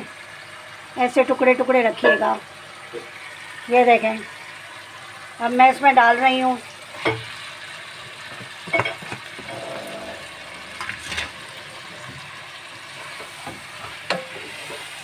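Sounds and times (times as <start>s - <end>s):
vegetables sizzling in a pan: 0.0s - 15.0s
utensils knocking against pan: 8.4s - 9.6s, 13.2s - 14.9s.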